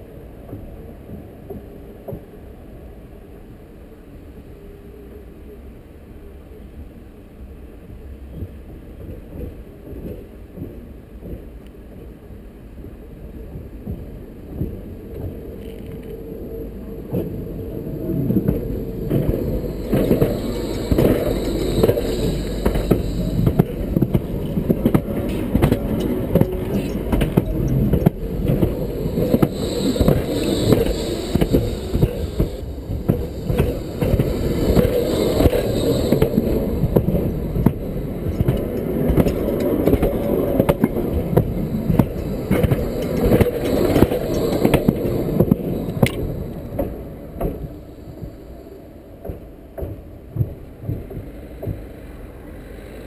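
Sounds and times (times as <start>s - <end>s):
tram wheels rumbling on rails: 0.0s - 4.4s, 5.0s - 53.0s
sharp clicks of tram wheels: 17.1s - 48.3s.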